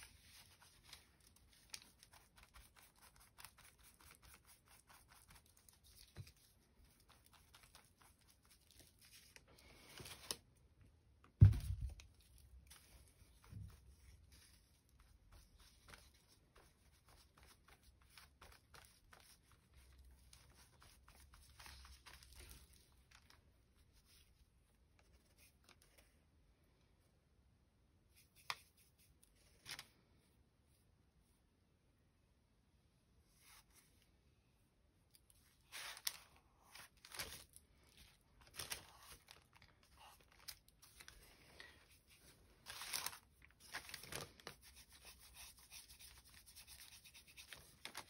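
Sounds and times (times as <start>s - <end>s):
paper rustling and tearing: 35.5s - 48.0s.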